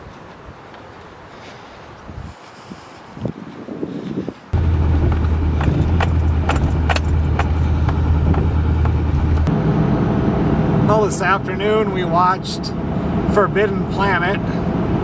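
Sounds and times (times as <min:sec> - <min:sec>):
engine and road noise drone: 0:04.4 - 0:15.0.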